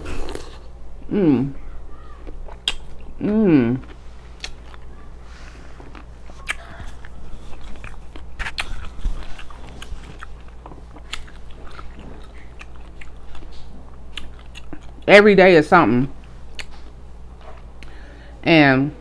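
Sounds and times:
chewing crisp cucumber: 2.2s - 5.1s, 5.7s - 15.1s, 16.2s - 17.9s.

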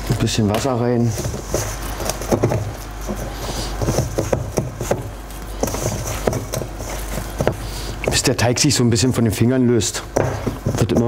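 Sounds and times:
dough squished in metal bowl: 0.0s - 9.2s
steady low hum: 0.0s - 11.0s.

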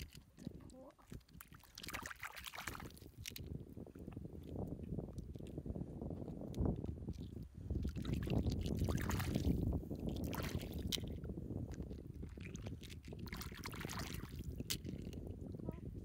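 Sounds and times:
hands squelching through wet mud: 0.0s - 15.3s
low microphone rumble: 3.4s - 16.0s.

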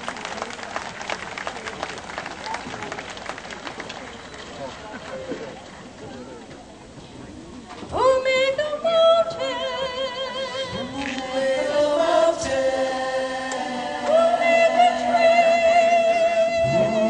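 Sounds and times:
choir singing a gospel song: 10.6s - 17.0s.

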